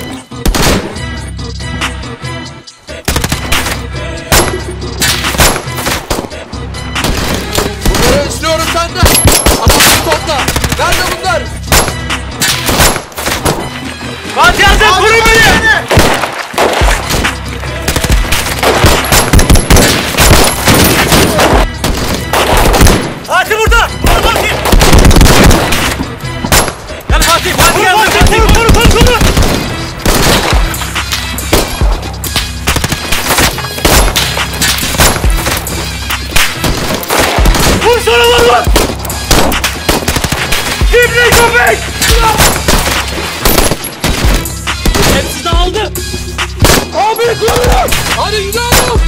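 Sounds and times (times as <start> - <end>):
background music: 0.0 - 49.0
rapid gunfire: 0.4 - 1.0, 3.1 - 6.4, 7.0 - 8.3, 9.0 - 13.7, 15.4 - 23.3, 24.0 - 30.8, 31.5 - 31.9, 32.6 - 45.4, 46.6 - 46.9, 47.5 - 49.0
gunshots and automatic fire: 3.1 - 6.4, 9.0 - 13.8, 15.8 - 23.2, 24.0 - 30.8, 32.6 - 37.9, 38.7 - 45.4.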